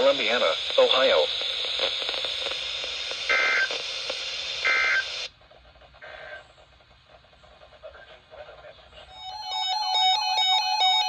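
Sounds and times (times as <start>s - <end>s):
radio broadcast hiss: 0.0s - 9.7s
digital data bursts: 3.2s - 3.8s, 4.6s - 5.2s.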